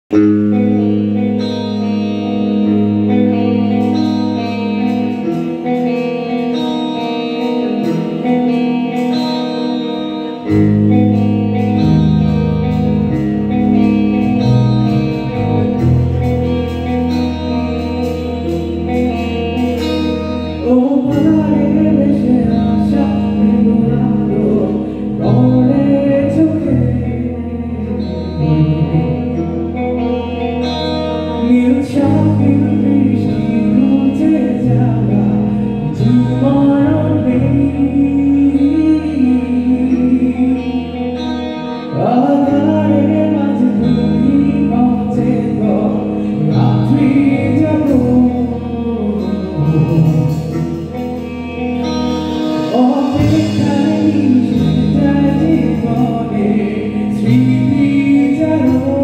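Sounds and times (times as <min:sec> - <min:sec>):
bass guitar: 0:00.0 - 0:59.0
electric guitars: 0:00.0 - 0:59.0
drum kit: 0:00.1 - 0:27.0, 0:46.6 - 0:59.0
wavering lead melody: 0:00.1 - 0:59.0.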